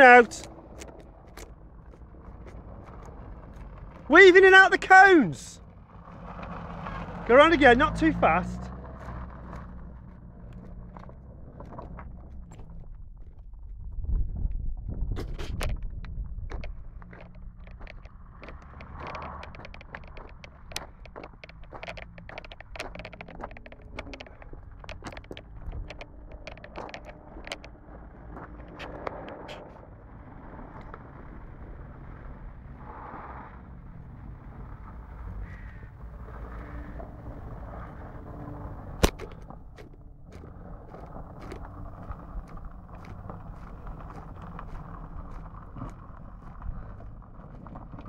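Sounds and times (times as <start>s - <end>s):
distant car engine running: 0.0s - 48.0s
wind rumbling on microphone: 8.6s - 48.0s
microphone crackles and clicks: 11.8s - 29.8s
faint ticks: 15.6s - 27.8s.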